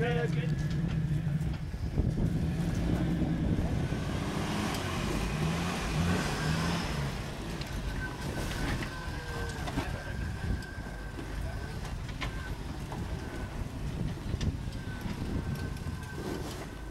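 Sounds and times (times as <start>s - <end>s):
engine running at low revs: 0.0s - 16.9s.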